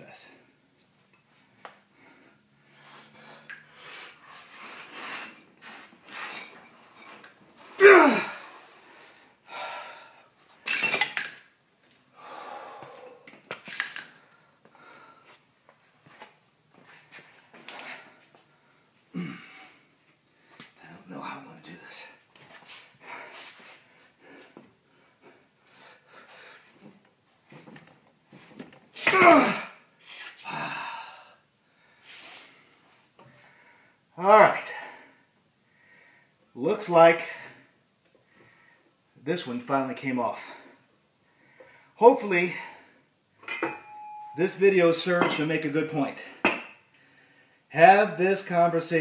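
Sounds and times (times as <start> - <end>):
man groaning: 7.8 - 8.5, 29.0 - 29.8, 30.4 - 31.2
man breathing hard: 8.3 - 10.3, 12.1 - 13.3, 14.1 - 15.4, 30.4 - 34.0.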